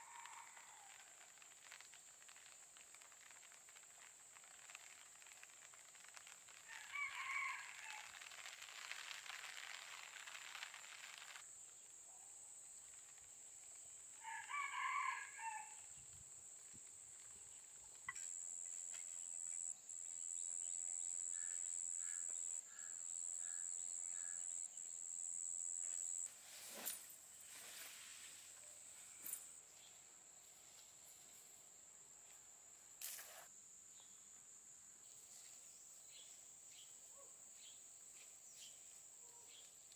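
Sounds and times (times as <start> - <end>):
rooster crowing: 0.0 - 1.2, 6.7 - 8.1, 14.2 - 15.8.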